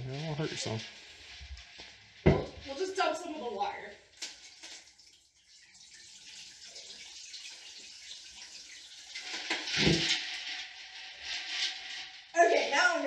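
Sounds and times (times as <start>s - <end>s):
water pouring into bathtub: 0.0s - 13.0s
thud: 2.2s - 2.7s, 9.8s - 10.2s.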